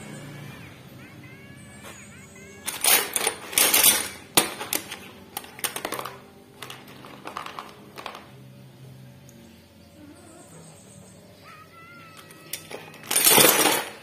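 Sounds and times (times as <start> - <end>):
metallic clicking and rattling: 2.6 - 8.3, 12.2 - 14.0.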